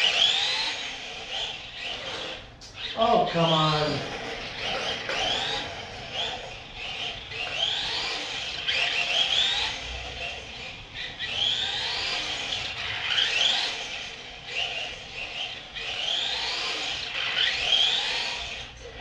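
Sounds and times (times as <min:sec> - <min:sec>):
toy car motor whining: 0:00.0 - 0:19.0.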